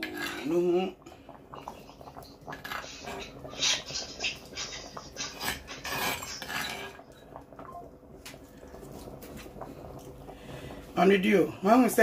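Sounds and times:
metal spoon scraping a pan: 0.0s - 0.5s, 4.6s - 7.0s.

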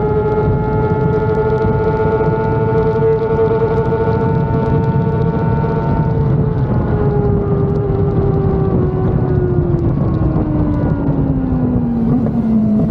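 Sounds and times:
wind rushing: 7.9s - 12.9s.

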